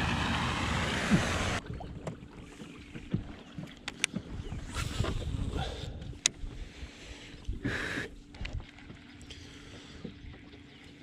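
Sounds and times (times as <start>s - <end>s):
wind on microphone: 4.3s - 6.7s.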